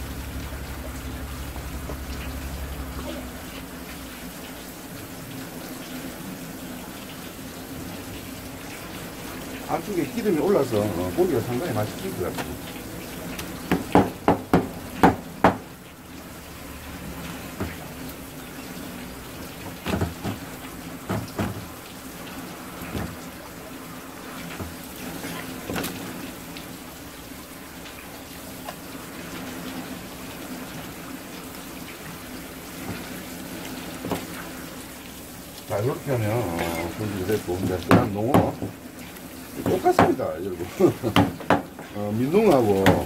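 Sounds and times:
tap water running: 0.0s - 43.0s
knife knocking on cutting board: 13.7s - 15.6s, 37.9s - 38.7s, 41.1s - 41.7s.

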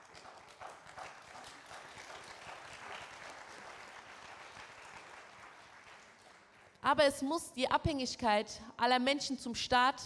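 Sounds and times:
audience applause: 0.0s - 6.7s.

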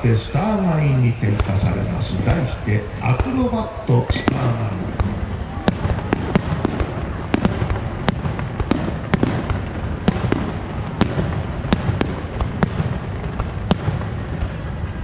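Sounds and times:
fireworks launching and bursting: 0.0s - 15.0s.

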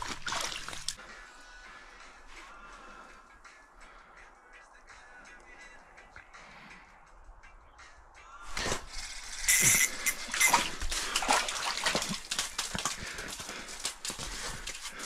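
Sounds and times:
fish flopping on wet ice: 0.0s - 1.0s, 8.5s - 15.0s.

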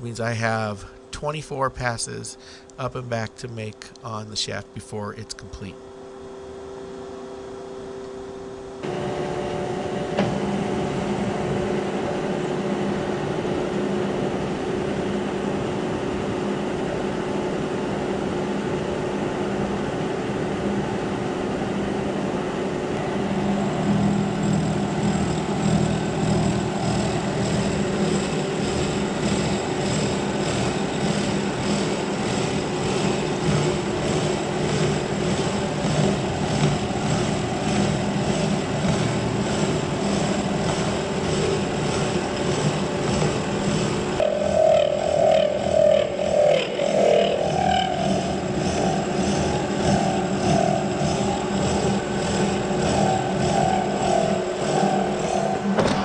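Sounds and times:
milling machine cutting metal: 23.4s - 56.0s.

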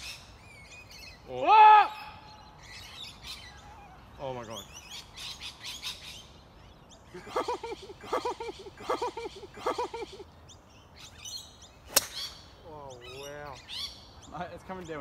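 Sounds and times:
bird calling harsh notes: 0.0s - 15.0s
small birds chirping: 0.0s - 15.0s
golf driver striking ball: 11.9s - 12.4s.

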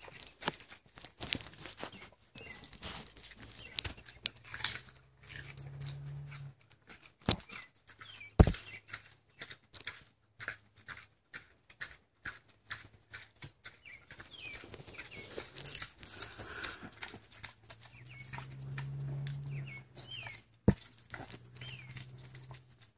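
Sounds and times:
pig chewing and lip-smacking: 0.0s - 22.9s
sharp knocks: 8.4s - 8.7s.

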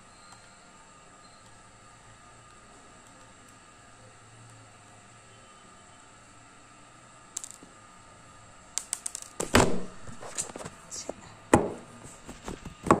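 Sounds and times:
loud thumps: 9.4s - 10.2s.

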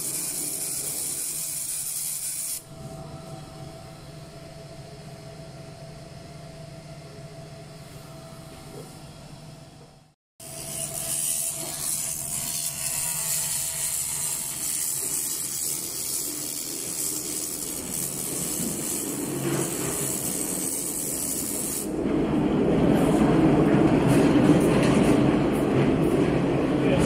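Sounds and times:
laser cleaning hiss: 0.0s - 2.6s, 10.6s - 21.9s.

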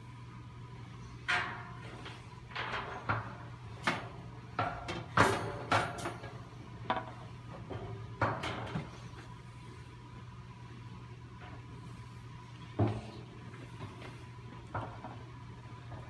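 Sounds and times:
steady low hum: 0.0s - 16.0s
metal clanks and knocks: 1.2s - 9.0s.

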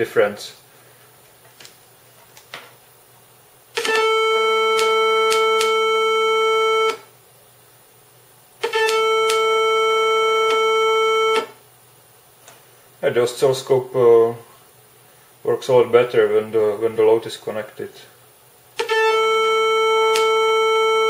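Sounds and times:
test tone from small speaker: 3.8s - 7.1s, 8.6s - 11.6s, 18.8s - 21.0s.

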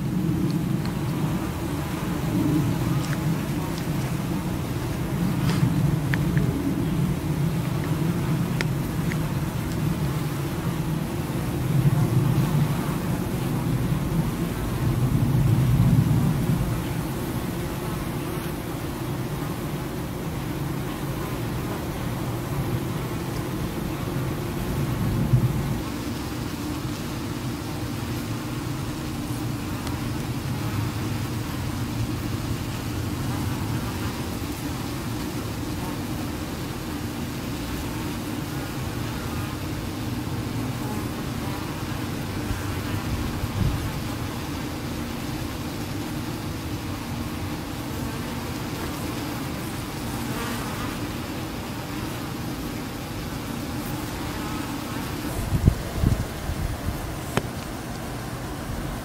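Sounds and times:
road traffic rumble: 0.0s - 20.5s, 55.0s - 59.0s
bee buzzing: 0.0s - 59.0s.

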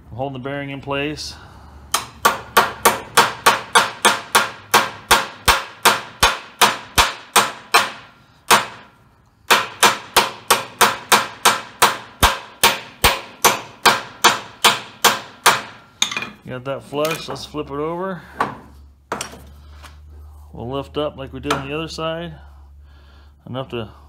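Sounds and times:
hammer striking metal: 1.9s - 16.4s, 21.4s - 21.8s.

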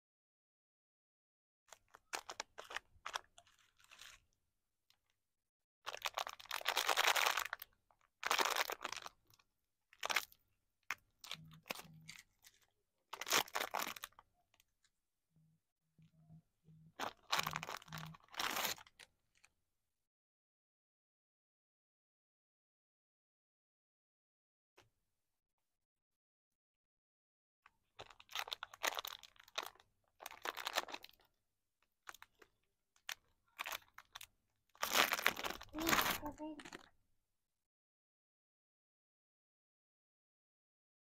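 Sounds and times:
cellophane wrappers crinkling: 1.7s - 4.3s, 5.9s - 9.4s, 10.0s - 14.6s, 17.0s - 19.1s, 28.0s - 31.3s, 32.1s - 36.9s.

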